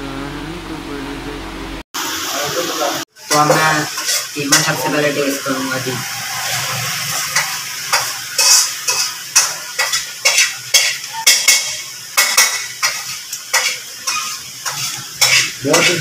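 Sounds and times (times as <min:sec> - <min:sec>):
frying sizzle: 0:02.0 - 0:16.0
metal utensils clattering: 0:07.1 - 0:16.0.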